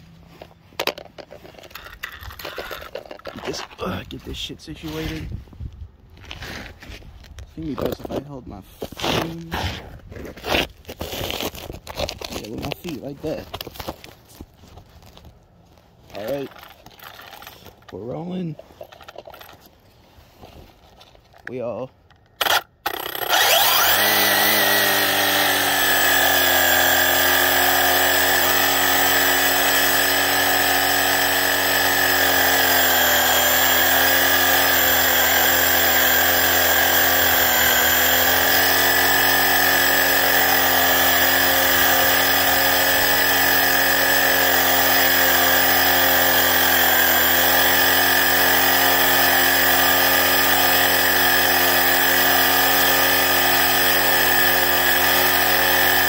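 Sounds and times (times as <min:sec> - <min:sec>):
rc car electric motor whine: 0:22.4 - 0:56.0.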